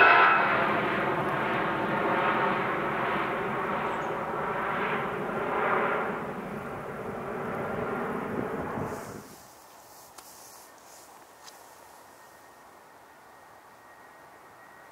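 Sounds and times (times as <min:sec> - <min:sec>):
jet engines roaring: 0:00.0 - 0:09.5.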